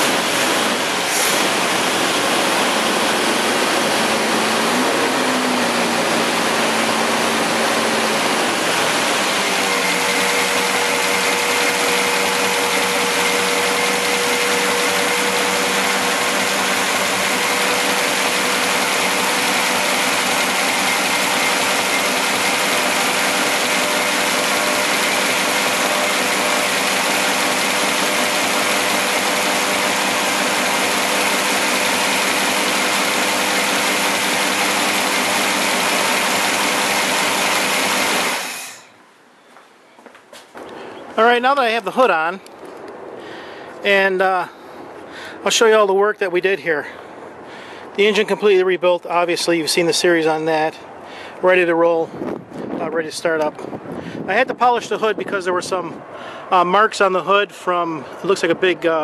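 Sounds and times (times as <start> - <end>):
car engine running: 0.0 - 38.8.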